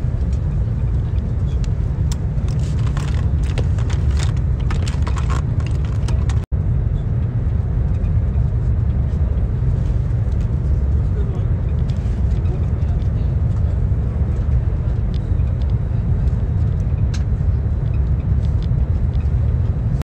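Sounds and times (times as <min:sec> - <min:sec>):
train rumble from inside carriage: 0:00.0 - 0:20.0
small clicks and rustles: 0:00.2 - 0:06.5.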